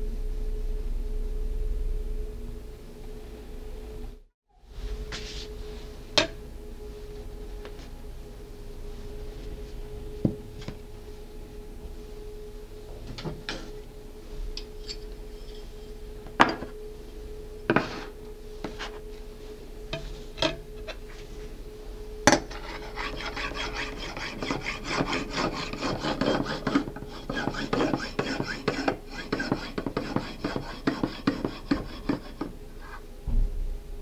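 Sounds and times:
knife sawing through sponge cake: 22.5 - 32.5.

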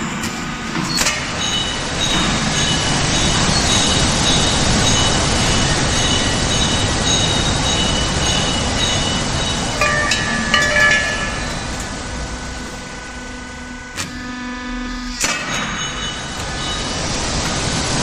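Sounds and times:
roll forming machine rumbling: 0.0 - 18.0
high metallic squeals: 0.8 - 11.8.

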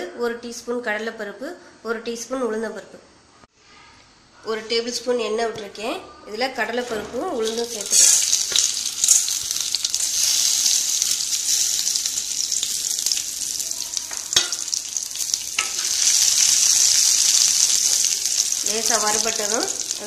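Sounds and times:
lentils sizzling in hot oil: 6.8 - 20.0.

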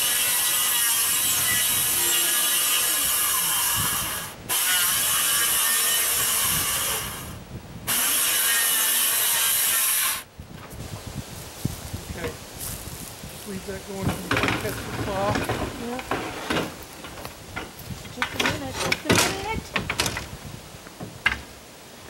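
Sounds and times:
circular saw cutting plywood: 0.0 - 10.3.

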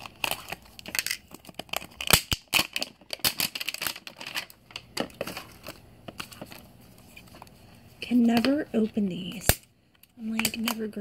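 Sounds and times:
foil wrapper tearing and crackling: 0.0 - 6.5.

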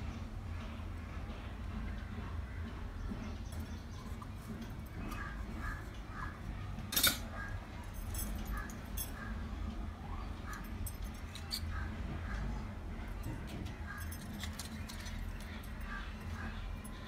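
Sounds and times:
small brass utensils clinking: 6.9 - 7.3, 10.5 - 11.8.

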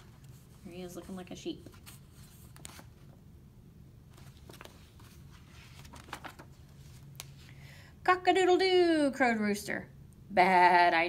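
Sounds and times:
paper pages rustling and turning: 0.0 - 3.2, 4.1 - 7.5.

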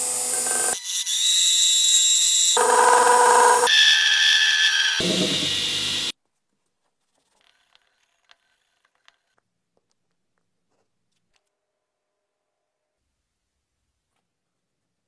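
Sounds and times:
power tool cutting metal: 0.0 - 6.1.

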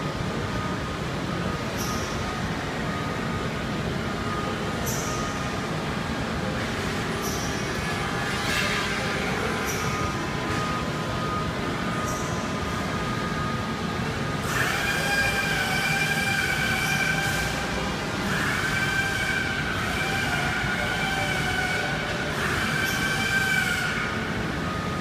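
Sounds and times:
miter saw running: 14.4 - 24.2.

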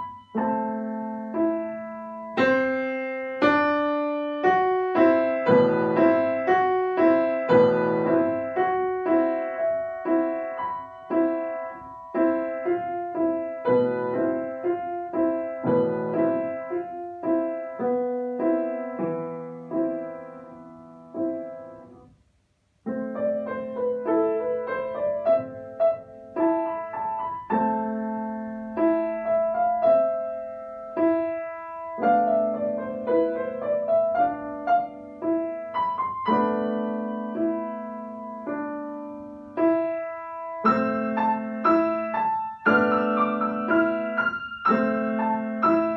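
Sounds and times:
solo grand piano playing: 0.0 - 45.9.

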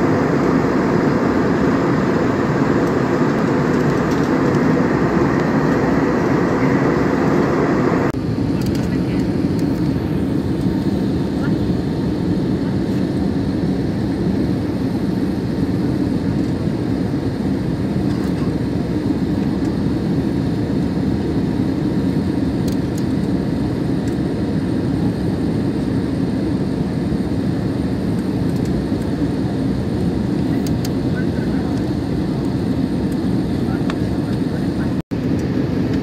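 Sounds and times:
airliner cabin rumble: 0.0 - 36.0.

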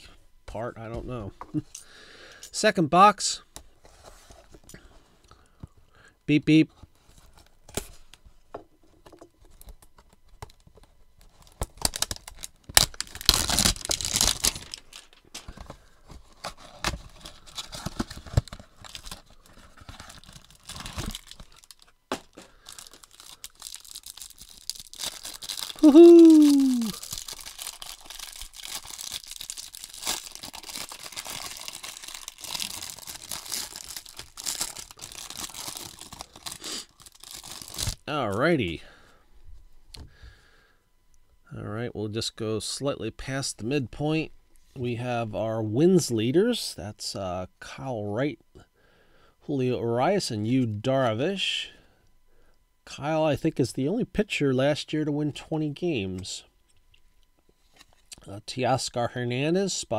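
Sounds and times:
plastic wrapping crinkling: 9.4 - 38.2.

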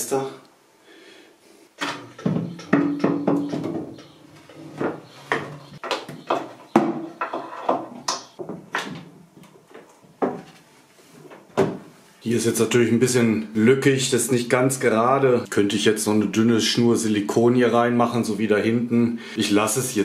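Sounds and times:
wooden knocks and taps: 1.8 - 10.6.

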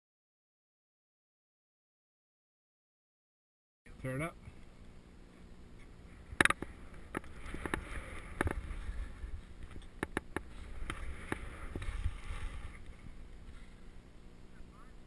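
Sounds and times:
wind buffeting microphone: 6.3 - 13.6
skis swishing through snow: 7.3 - 13.8.

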